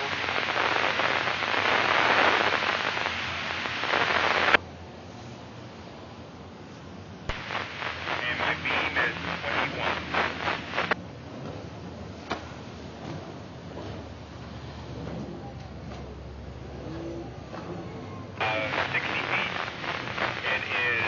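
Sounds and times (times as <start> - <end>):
indistinct radio chatter: 0.0 - 4.6, 7.3 - 11.0, 18.4 - 21.0
radio squelch click: 0.0 - 4.6, 7.3 - 11.0, 18.4 - 21.0
static-laden radio transmission: 0.0 - 4.6, 7.3 - 11.0, 18.4 - 21.0.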